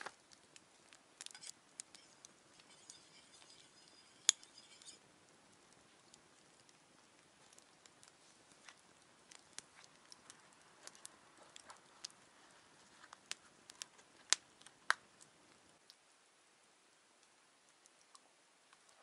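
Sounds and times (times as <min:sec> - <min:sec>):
campfire crackling and popping: 0:00.0 - 0:19.0.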